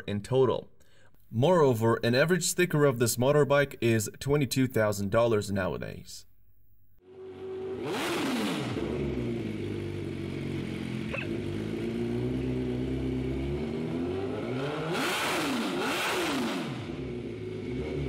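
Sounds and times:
motorcycle engine revving: 0:07.0 - 0:18.0.

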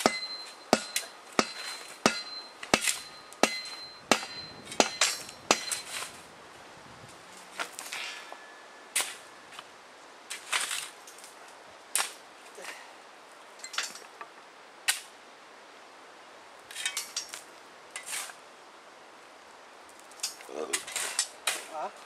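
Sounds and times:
hammer striking steel: 0:00.0 - 0:05.9.

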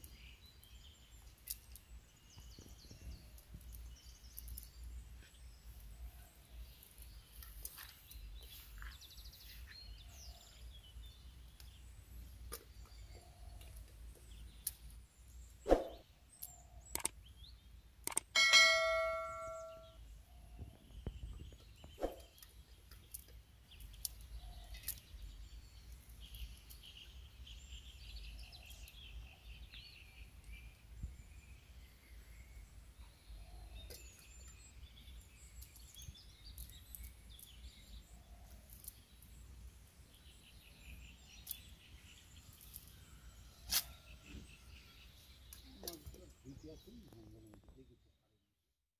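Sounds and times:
birds chirping: 0:00.0 - 0:48.3
sharp clicks: 0:16.4 - 0:17.2, 0:18.0 - 0:18.3.

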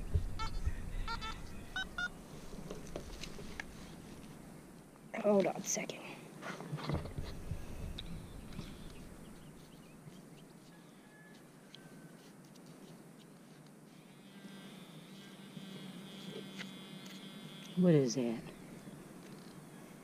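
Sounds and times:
soft thumps: 0:00.0 - 0:00.6
soil and grass rustling: 0:00.0 - 0:20.0.

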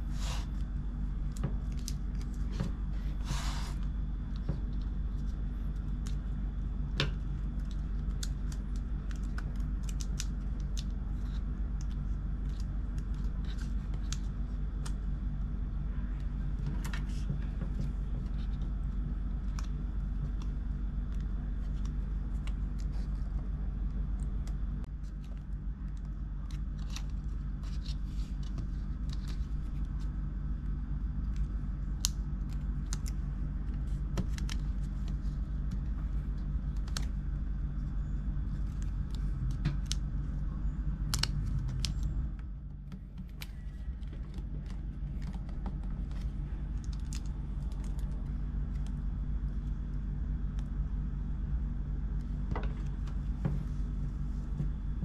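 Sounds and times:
steady low hum: 0:00.0 - 0:55.0.

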